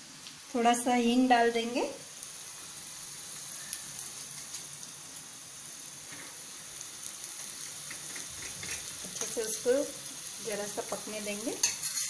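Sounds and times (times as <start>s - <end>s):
hot oil sizzling in a pan: 0.0s - 12.0s
faint crackles: 3.4s - 5.3s.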